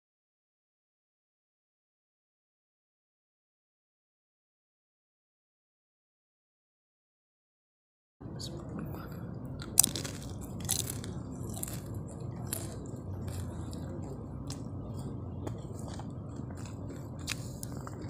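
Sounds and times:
steady low hum: 0:08.2 - 0:18.0
chewing and mouth clicks: 0:08.4 - 0:18.0.

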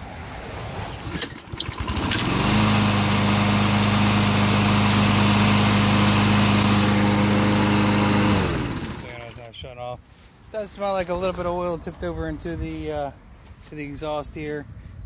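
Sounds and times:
lawn mower engine starting and running: 0:00.2 - 0:09.6.

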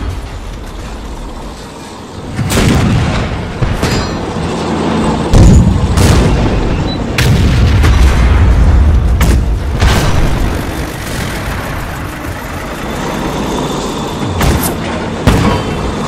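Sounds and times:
tank guns firing: 0:02.3 - 0:04.2, 0:05.3 - 0:12.8, 0:14.3 - 0:16.0.

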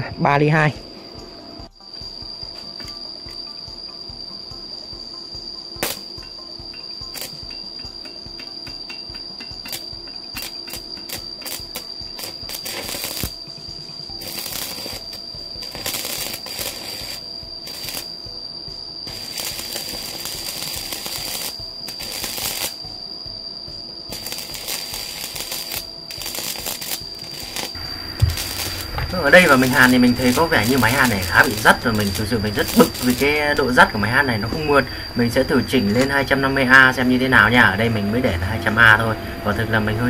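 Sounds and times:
high-pitched welder whine: 0:01.2 - 0:40.0
welding arc crackling: 0:05.8 - 0:06.3, 0:07.0 - 0:18.3, 0:19.0 - 0:22.9, 0:24.1 - 0:40.0.

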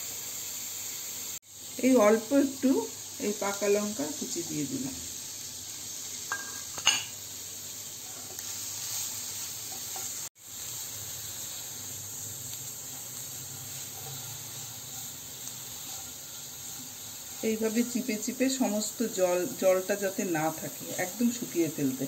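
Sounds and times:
leaves sizzling in a frying pan: 0:00.0 - 0:22.0
spatula stirring: 0:08.0 - 0:10.3, 0:12.7 - 0:18.5.

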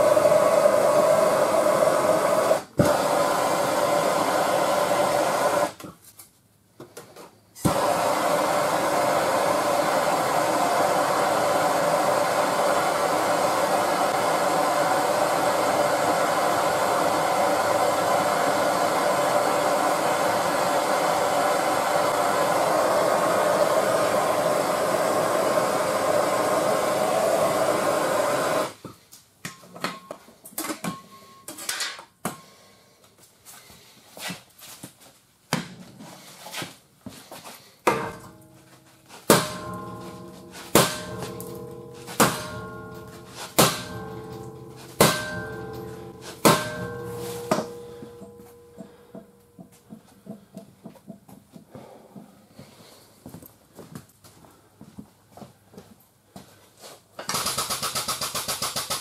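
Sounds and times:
torch flame burning: 0:00.0 - 0:05.8, 0:07.6 - 0:28.8.

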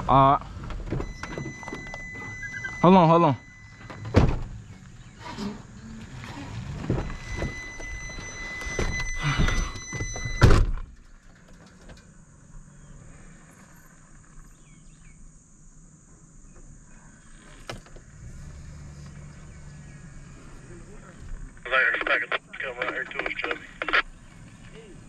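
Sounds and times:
truck door slamming: 0:03.9 - 0:04.6, 0:06.7 - 0:11.0.

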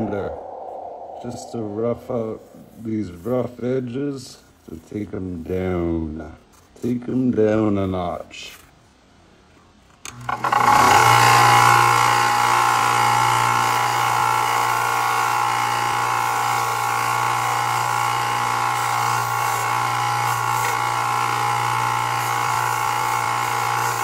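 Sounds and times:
motor hum: 0:10.1 - 0:24.0
belt sander sanding leather: 0:10.3 - 0:24.0.

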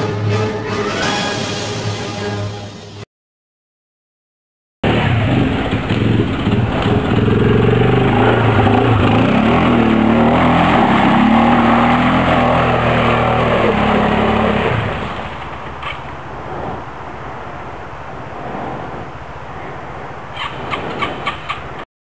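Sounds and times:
quad bike engine revving: 0:04.8 - 0:19.2.

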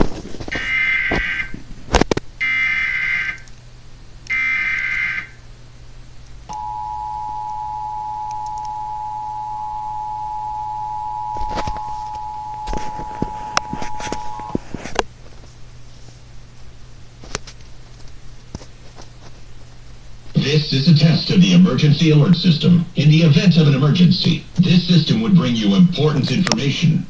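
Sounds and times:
two-tone attention signal: 0:06.5 - 0:14.6.

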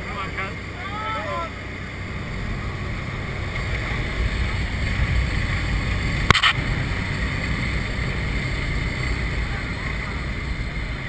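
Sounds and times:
airplane engine and wind noise: 0:00.0 - 0:11.0
sharp knock: 0:06.3 - 0:06.6.

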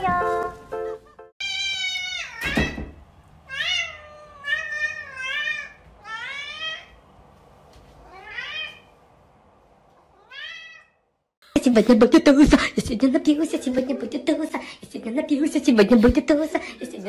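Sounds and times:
cat meowing: 0:01.4 - 0:02.8, 0:03.5 - 0:07.0, 0:08.0 - 0:08.9, 0:10.1 - 0:11.0.

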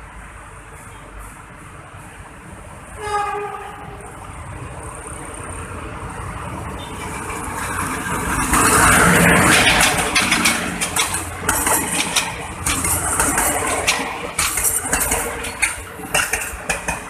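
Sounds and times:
diesel locomotive engine: 0:00.0 - 0:17.0
train horn: 0:03.0 - 0:04.0
wheels clattering over rail joints: 0:06.9 - 0:17.0.

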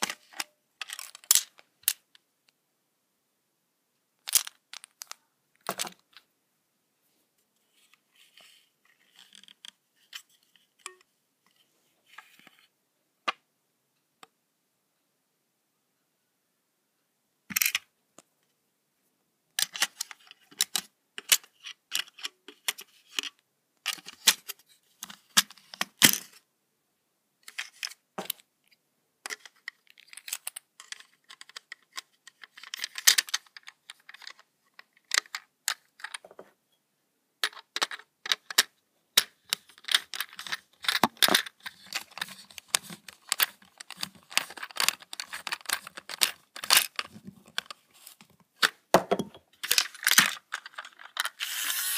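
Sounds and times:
plastic toy train clicking and rattling: 0:00.0 - 0:02.1, 0:04.2 - 0:06.2, 0:08.2 - 0:11.0, 0:17.5 - 0:17.9, 0:19.6 - 0:26.4, 0:29.2 - 0:36.3, 0:37.4 - 0:48.8, 0:49.6 - 0:51.9.

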